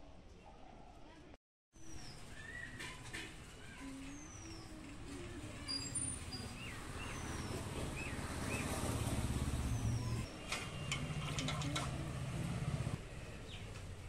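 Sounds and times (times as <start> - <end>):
birds chirping: 1.8 - 13.7
vehicle engine rumbling: 4.8 - 13.7.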